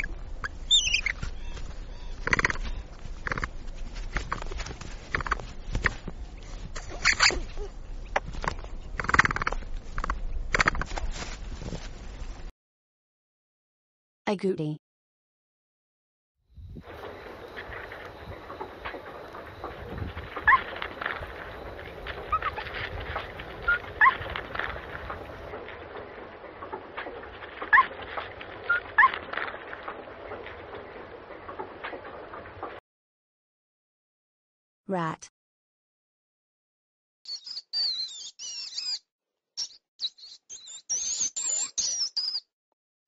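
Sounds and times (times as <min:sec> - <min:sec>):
capybara clicking calls: 0:00.0 - 0:03.6, 0:04.2 - 0:06.0, 0:08.1 - 0:10.9, 0:18.4 - 0:25.2
rustling in leaf litter: 0:00.0 - 0:09.0, 0:09.7 - 0:12.5, 0:16.8 - 0:30.6.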